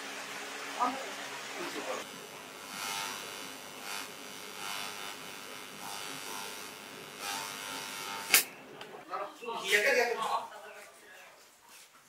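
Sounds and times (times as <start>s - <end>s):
welding arc hissing and buzzing: 1.6s - 8.6s.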